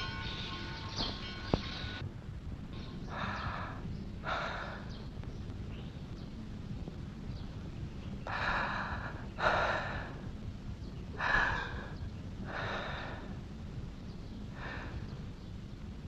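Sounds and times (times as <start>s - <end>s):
steady low hum: 0.0s - 16.0s
person breathing heavily: 3.0s - 5.1s, 8.2s - 10.4s, 11.2s - 13.5s, 14.5s - 15.3s.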